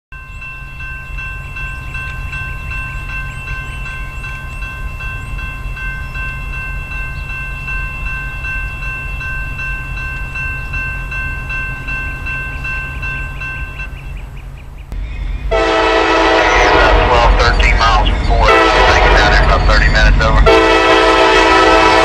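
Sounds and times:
railroad crossing bell ringing: 0:00.1 - 0:14.8, 0:15.4 - 0:22.0
locomotive air horn blowing: 0:15.5 - 0:17.8, 0:18.4 - 0:19.6, 0:20.4 - 0:22.0.

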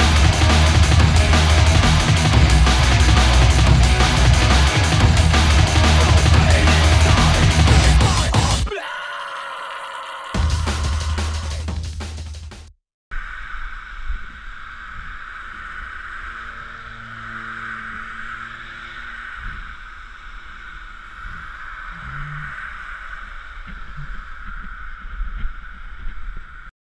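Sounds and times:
wind over camera: 0:13.1 - 0:26.7.

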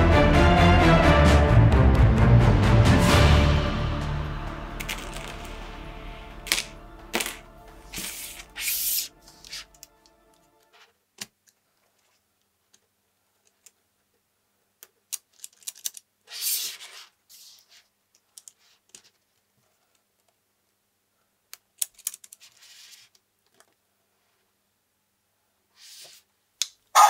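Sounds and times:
small plastic clicks and rattles: 0:14.8 - 0:16.1, 0:21.5 - 0:23.8.

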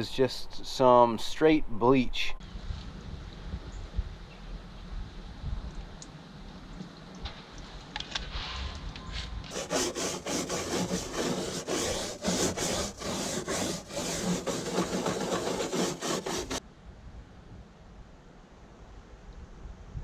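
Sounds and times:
scrub brush scrubbing plastic: 0:09.5 - 0:16.6.

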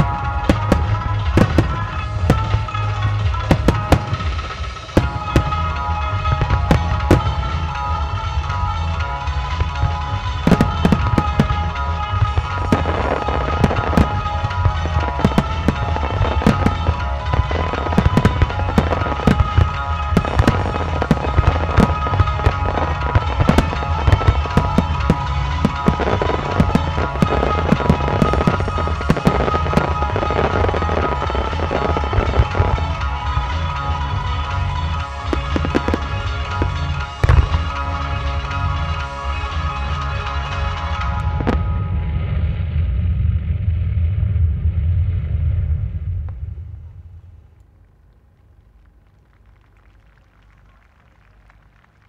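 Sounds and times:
background music with held tones: 0:00.0 - 0:42.8.

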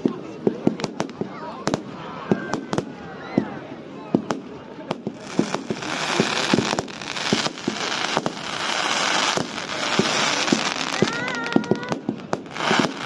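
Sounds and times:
fireworks bangs: 0:00.0 - 0:13.0
fireworks hissing: 0:04.9 - 0:13.0.

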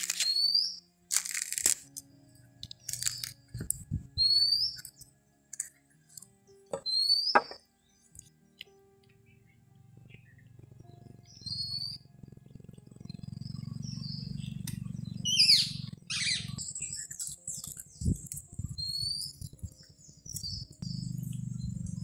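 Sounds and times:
birds chirping and calling: 0:00.0 - 0:00.8, 0:02.6 - 0:05.1, 0:06.7 - 0:22.0
low rumble: 0:20.8 - 0:22.0.

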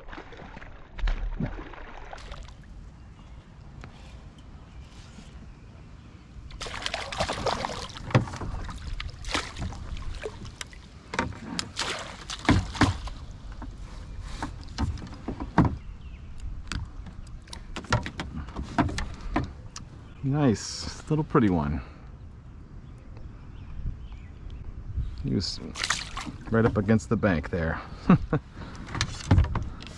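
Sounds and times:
fish splashing in water: 0:00.0 - 0:02.8, 0:06.6 - 0:10.8, 0:11.7 - 0:13.2, 0:25.7 - 0:26.4.

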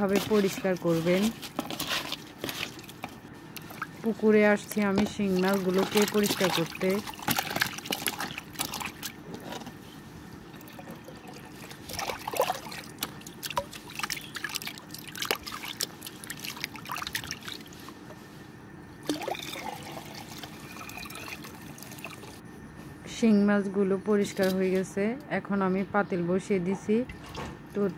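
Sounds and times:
water splashing in a plastic tub: 0:00.0 - 0:09.7, 0:10.4 - 0:17.9, 0:19.0 - 0:22.4
water pouring from a tub: 0:05.2 - 0:09.2, 0:10.5 - 0:17.8, 0:19.0 - 0:22.4.

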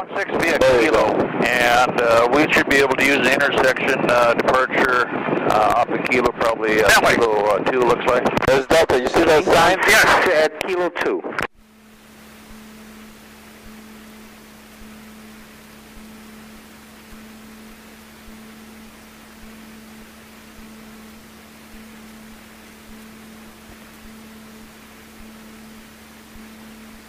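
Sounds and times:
steady radio hiss: 0:00.0 - 0:27.0
low electrical hum: 0:11.5 - 0:27.0.

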